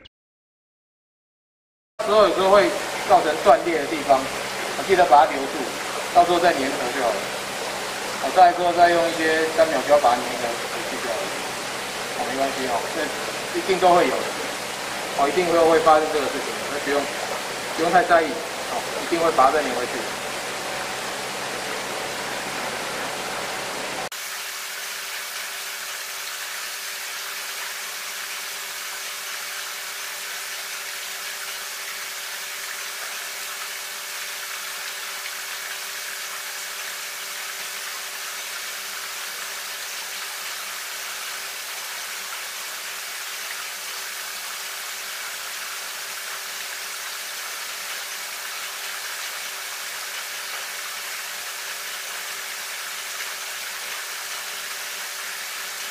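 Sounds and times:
water running from tap into tank: 2.0s - 55.9s.

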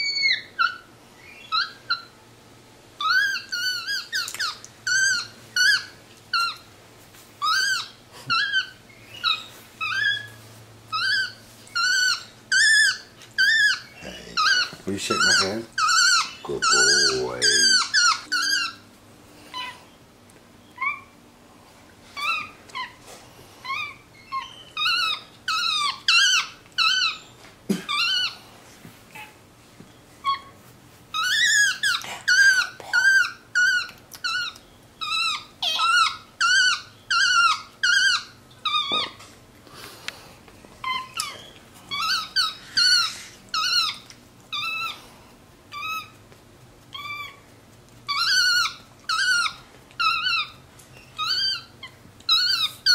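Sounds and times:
monkey squeaky chirps: 0.0s - 2.1s, 3.0s - 6.6s, 7.4s - 18.8s, 23.6s - 28.4s, 31.1s - 39.2s, 40.8s - 45.0s, 45.7s - 46.2s, 46.9s - 47.4s, 48.1s - 52.9s.

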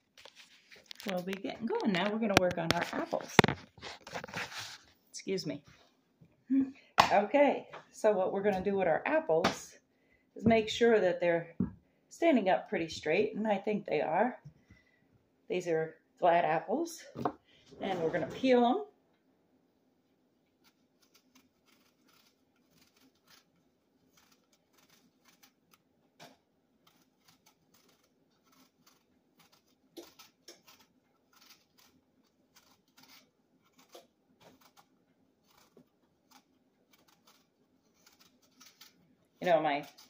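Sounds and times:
knife peeling apple skin: 20.5s - 40.0s.

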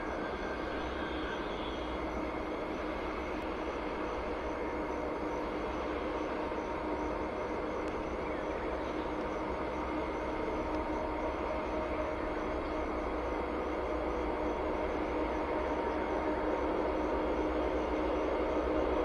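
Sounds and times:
diesel locomotive passing: 0.0s - 19.0s.

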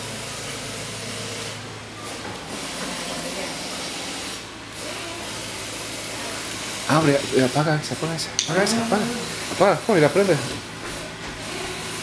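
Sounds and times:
faint indistinct voices: 2.0s - 7.4s.

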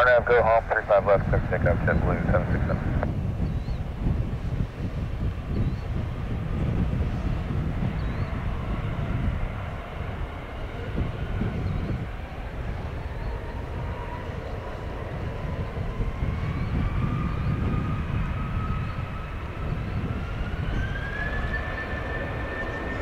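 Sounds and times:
jet engines spooling up: 0.0s - 23.0s.

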